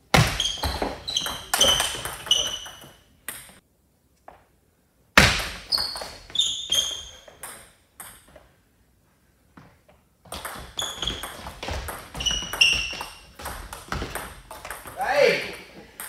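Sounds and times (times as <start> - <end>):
table tennis ball pinging: 0.2 - 3.6, 5.2 - 8.4, 10.3 - 15.0.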